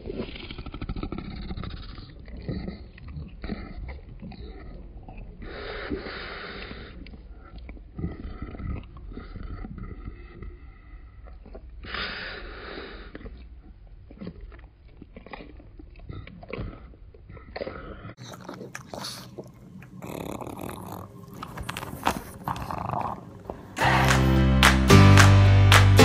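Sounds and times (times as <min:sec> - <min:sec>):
dog chewing: 0:00.0 - 0:24.3
dog snuffly breathing: 0:05.4 - 0:07.1, 0:11.8 - 0:13.4, 0:17.6 - 0:24.1.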